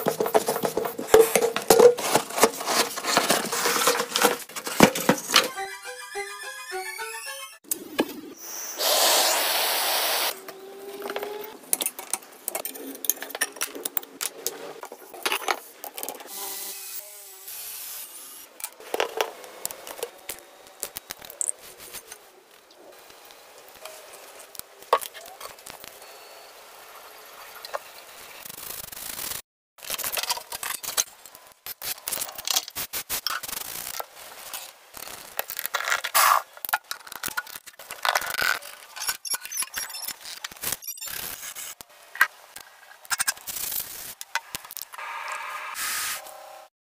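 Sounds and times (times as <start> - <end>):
loud hissing rush: 8.7 - 10.4
tools clicking and scraping metal: 35.1 - 41.1.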